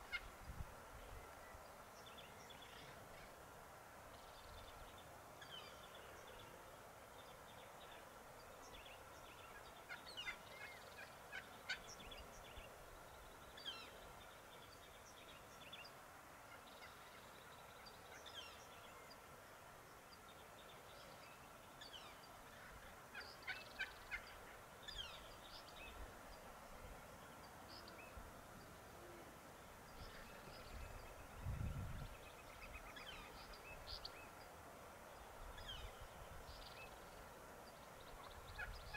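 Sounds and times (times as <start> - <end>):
turkey hens calling: 23.1 - 25.2.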